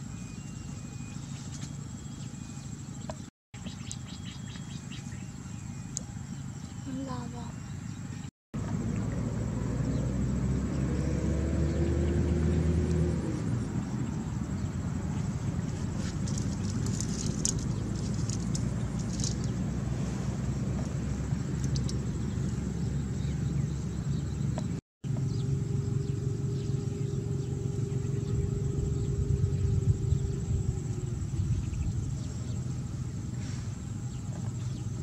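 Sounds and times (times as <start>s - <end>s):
low rumble: 7.6s - 35.0s
faint steady hum: 13.6s - 35.0s.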